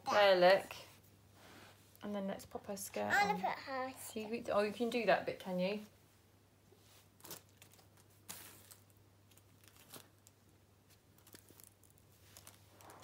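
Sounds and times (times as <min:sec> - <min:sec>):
plastic doll clothes rustling: 0:06.8 - 0:13.0.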